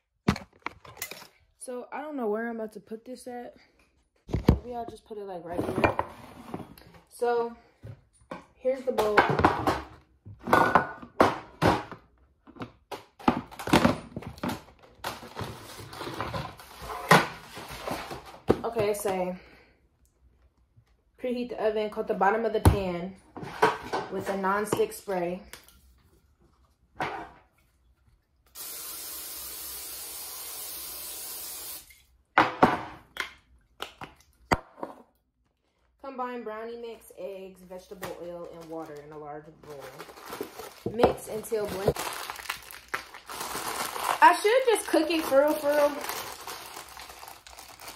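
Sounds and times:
kitchen things knocking on counter: 9.0s - 12.0s, 32.4s - 33.1s
aerosol can hissing: 28.6s - 31.8s.

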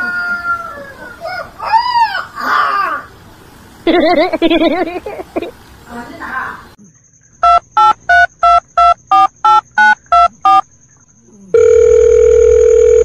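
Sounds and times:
telephone keypad beeps: 7.4s - 10.6s, 11.6s - 13.0s.

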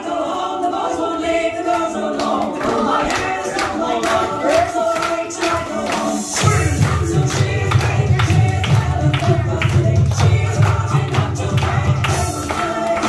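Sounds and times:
group singing: 0.0s - 13.0s
regular beat: 3.2s - 13.0s.

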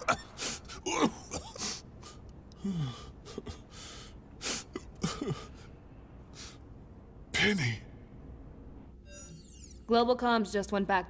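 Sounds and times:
man sobbing: 0.0s - 5.8s.

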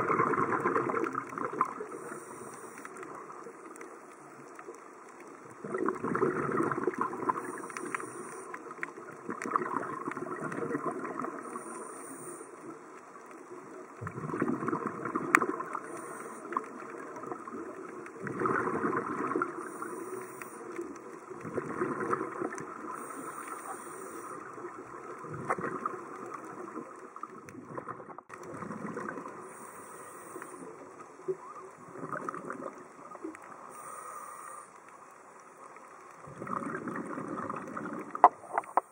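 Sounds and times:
exhaled bubbles gurgling: 0.0s - 34.6s, 36.0s - 38.9s
regulator hiss: 1.9s - 3.0s, 7.4s - 8.6s, 11.4s - 12.6s, 15.8s - 16.6s, 19.6s - 20.7s, 22.8s - 24.5s, 29.4s - 31.2s, 33.5s - 35.1s.

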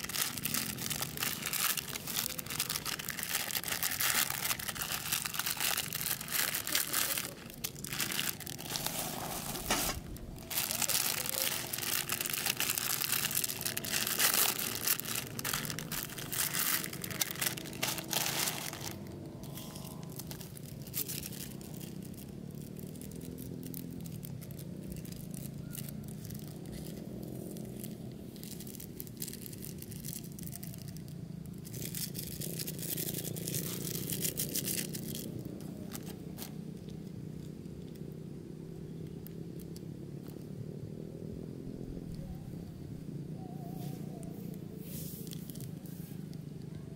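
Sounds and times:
plastic packets crinkling: 0.0s - 36.6s
low steady hum: 0.0s - 46.9s.

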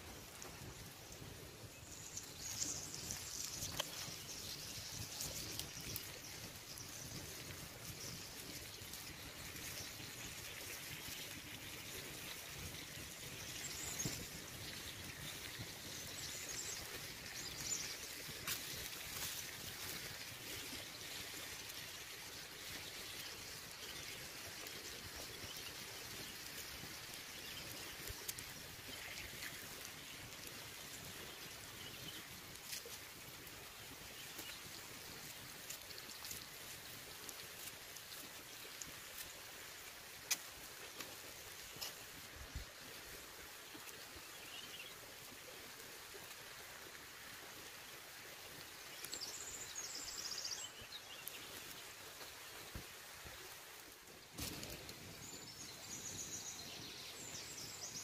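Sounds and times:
wood fire crackling: 0.0s - 12.0s, 14.1s - 42.7s, 51.2s - 55.6s.

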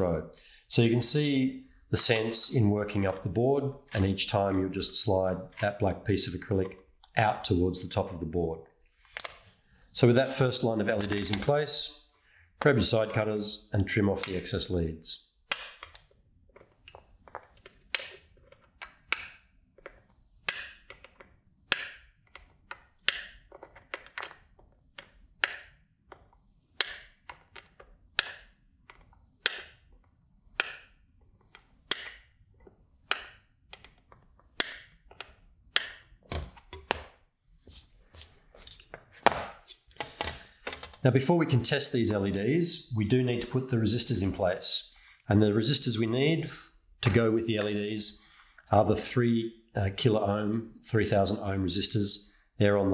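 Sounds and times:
circuit board rustling: 15.5s - 41.1s.

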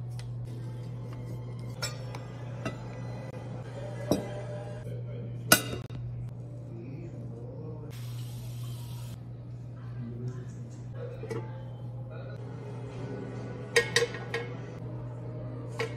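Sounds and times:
steady low hum: 0.0s - 15.9s.

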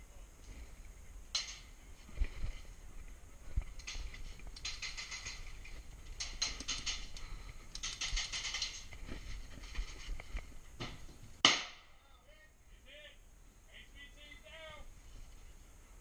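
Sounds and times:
airsoft guns firing clicks: 6.1s - 8.8s.

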